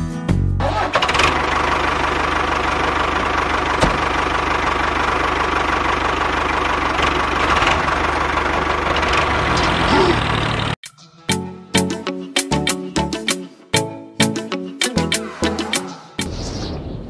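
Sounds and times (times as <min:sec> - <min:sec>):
diesel tractor engine idling: 0:00.6 - 0:10.8.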